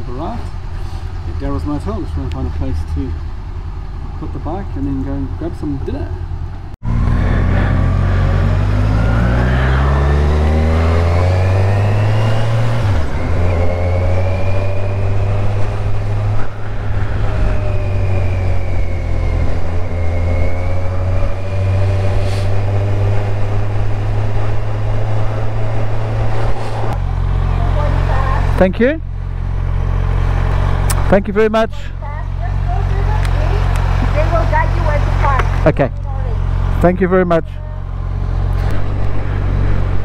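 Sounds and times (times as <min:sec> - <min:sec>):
motorcycle engine running: 0:22.6 - 0:36.9.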